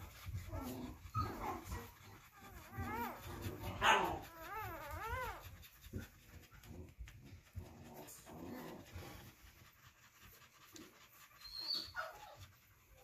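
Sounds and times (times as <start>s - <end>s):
dog panting softly: 0.0s - 13.0s
puppies crying: 0.0s - 13.0s.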